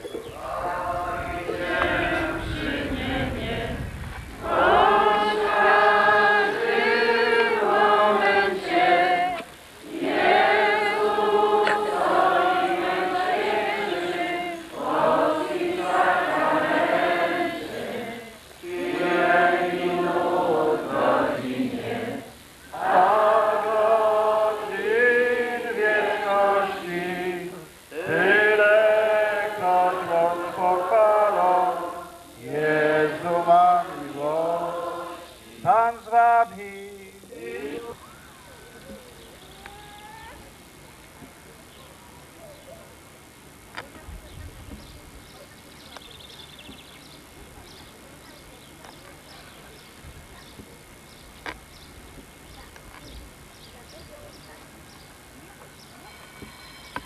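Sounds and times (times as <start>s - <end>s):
choir singing a hymn: 0.4s - 38.0s.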